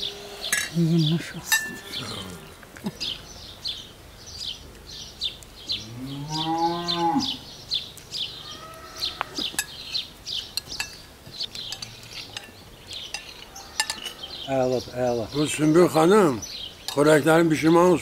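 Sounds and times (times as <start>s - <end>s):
small birds chirping: 0.0s - 18.0s
spoons clinking on plates: 1.5s - 2.0s, 9.4s - 9.8s, 10.5s - 14.2s
cow mooing: 5.8s - 7.4s.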